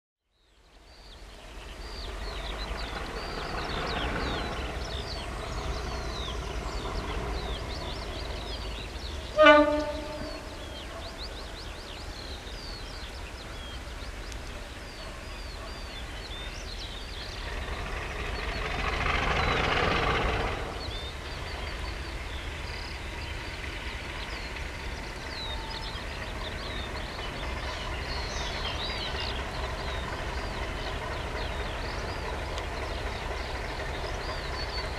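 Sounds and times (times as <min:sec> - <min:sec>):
birds singing: 0:00.3 - 0:34.9
distant locomotive horn blast: 0:05.8 - 0:11.0.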